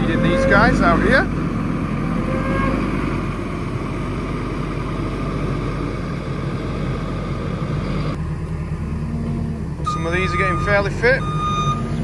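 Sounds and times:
diesel engine running: 0:00.0 - 0:12.0.

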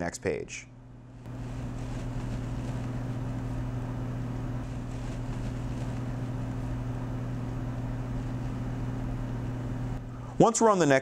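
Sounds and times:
steady low hum: 0:00.0 - 0:11.0
background hiss: 0:01.3 - 0:03.8, 0:04.4 - 0:06.9.

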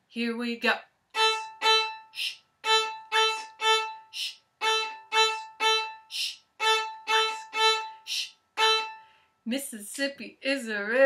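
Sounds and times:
violin short bow strokes: 0:01.2 - 0:09.1.

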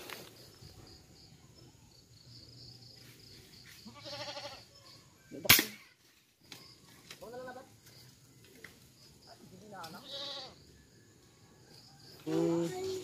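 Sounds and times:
animal bleat-like call: 0:03.8 - 0:04.7, 0:10.0 - 0:10.6
air rifle shot: 0:05.4 - 0:05.8.

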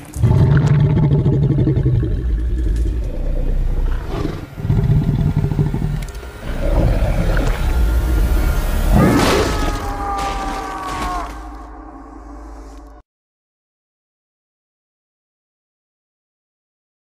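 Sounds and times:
deep monster growling: 0:00.0 - 0:13.0.

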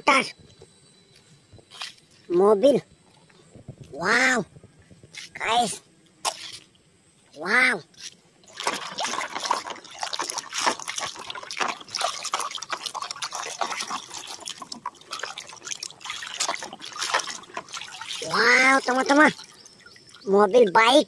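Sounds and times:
water dripping: 0:08.4 - 0:21.0
water sloshing in plastic basin: 0:08.4 - 0:21.0.

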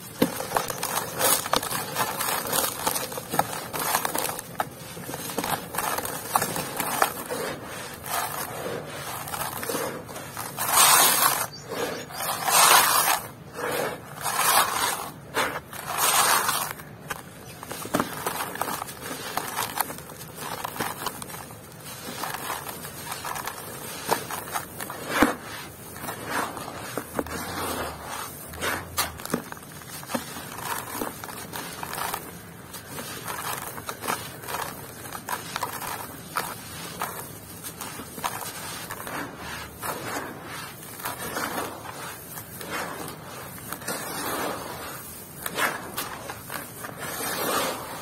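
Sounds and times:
sand block crunching and crumbling: 0:00.0 - 0:48.0
grit pouring into basin: 0:21.9 - 0:29.3, 0:33.0 - 0:48.0.

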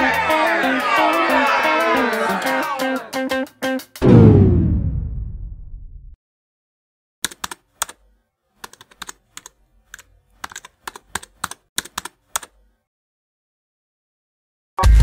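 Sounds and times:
keyboard keystroke clicks: 0:07.2 - 0:08.0, 0:08.6 - 0:12.6.

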